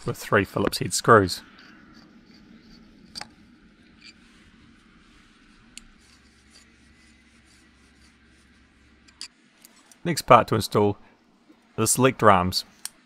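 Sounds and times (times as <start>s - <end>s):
low hum: 0.0s - 12.2s
screwdriver clicking and scraping: 1.6s - 4.2s, 5.7s - 8.1s, 9.0s - 10.0s.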